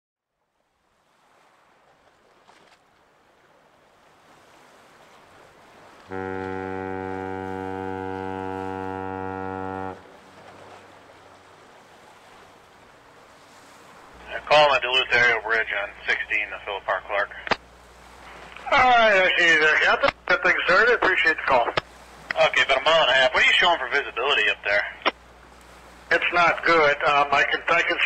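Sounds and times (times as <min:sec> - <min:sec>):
water lapping on rocks: 0:00.9 - 0:14.3
ship's horn long low blast: 0:06.0 - 0:12.7.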